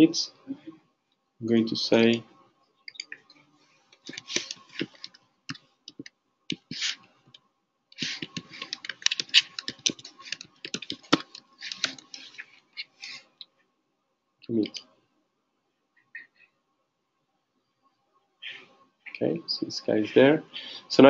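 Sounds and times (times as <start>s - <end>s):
keyboard typing: 2.9s - 3.4s, 4.0s - 5.2s, 5.9s - 7.0s, 8.0s - 13.2s, 14.5s - 14.8s.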